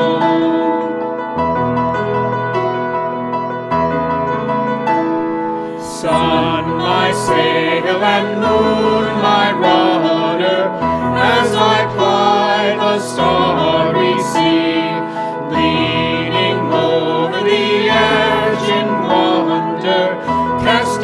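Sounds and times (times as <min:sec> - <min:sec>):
man leading singing: 0:00.0 - 0:00.8, 0:05.8 - 0:21.0
congregation singing a hymn: 0:00.0 - 0:00.9, 0:05.8 - 0:21.0
piano accompaniment: 0:00.0 - 0:21.0.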